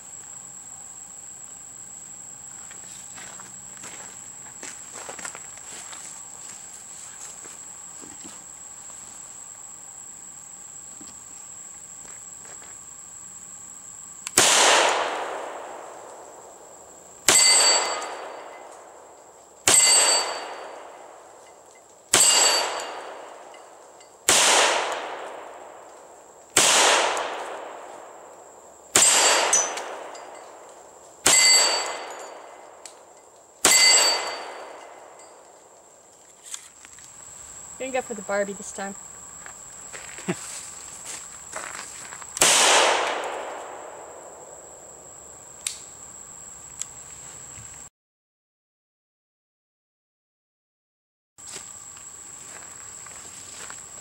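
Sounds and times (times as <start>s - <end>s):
pistol shots: 14.3s - 16.2s, 19.6s - 21.1s, 22.1s - 23.3s, 24.3s - 25.8s, 26.6s - 27.9s, 28.9s - 30.3s, 31.2s - 32.8s, 33.6s - 35.0s, 42.4s - 44.3s.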